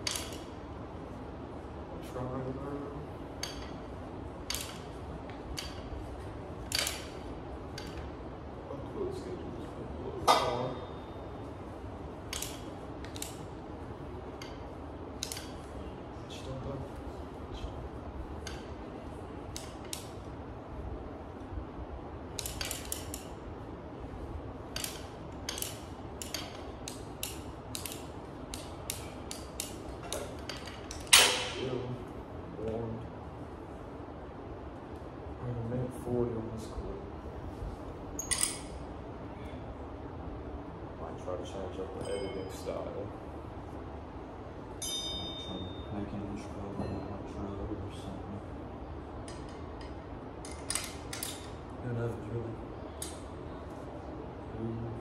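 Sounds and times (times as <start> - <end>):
low background hum: 0.0 - 55.0
cable machine creaking and clicking: 4.4 - 5.9, 6.6 - 8.1, 22.4 - 23.4, 24.7 - 31.5
weight stack clinking: 24.7 - 31.6.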